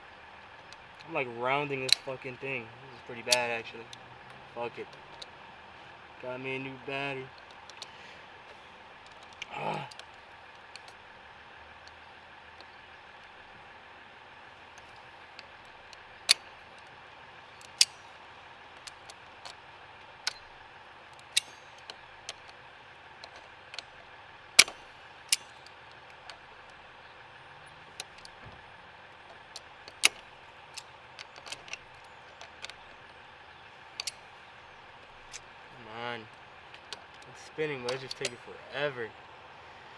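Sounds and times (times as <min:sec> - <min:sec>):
steady low hiss: 0:00.0 - 0:39.9
pliers clicking on metal nut: 0:34.0 - 0:34.2, 0:37.9 - 0:38.4.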